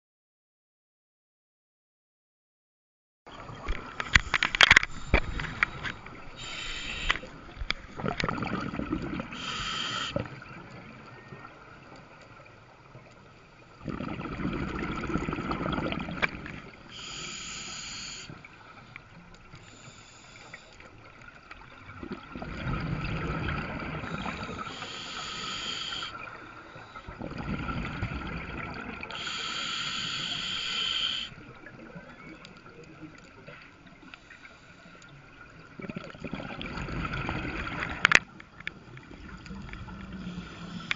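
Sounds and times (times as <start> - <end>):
regulator inhale hiss: 4.0 - 7.3, 9.3 - 10.3, 16.9 - 18.8, 19.6 - 20.9, 24.0 - 27.1, 29.1 - 31.4, 40.1 - 40.9
exhaust bubbling underwater: 7.9 - 9.6, 13.8 - 16.8, 21.9 - 25.0, 27.1 - 29.2, 35.7 - 38.0.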